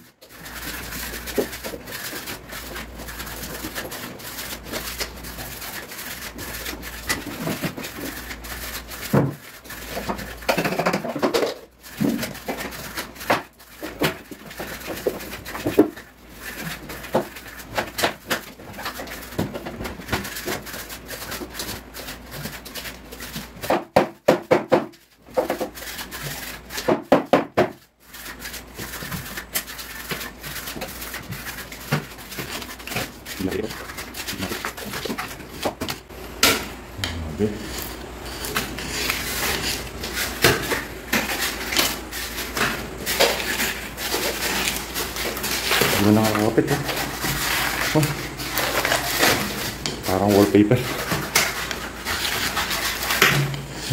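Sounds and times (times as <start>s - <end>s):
putty knife scraping paint: 37.4s - 53.9s.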